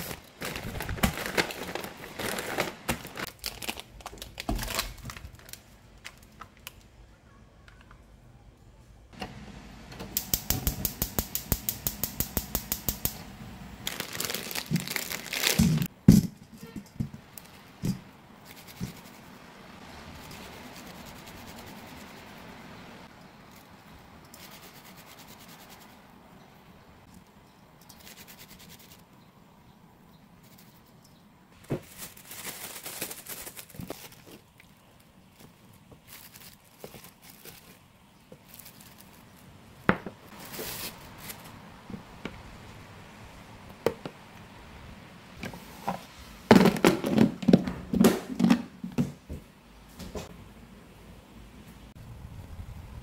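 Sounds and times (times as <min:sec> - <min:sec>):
rustles: 0:00.0 - 0:06.9, 0:13.2 - 0:26.2, 0:27.0 - 0:29.2, 0:30.3 - 0:46.5
noodles rubbed between palms: 0:24.4 - 0:26.1, 0:28.0 - 0:29.1.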